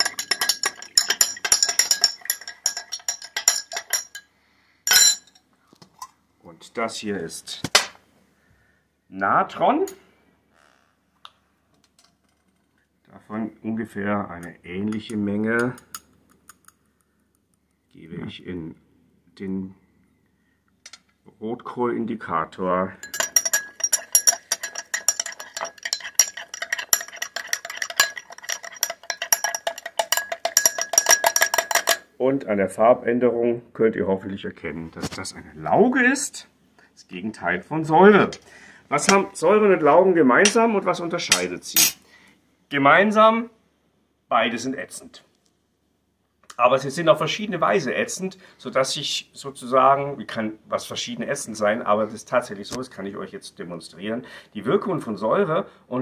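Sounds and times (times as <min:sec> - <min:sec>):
glass ringing: 0:00.0 - 0:04.3, 0:04.9 - 0:05.4, 0:23.0 - 0:32.1
teaspoon clinking in glass: 0:00.0 - 0:04.3, 0:04.9 - 0:05.4, 0:23.0 - 0:32.0.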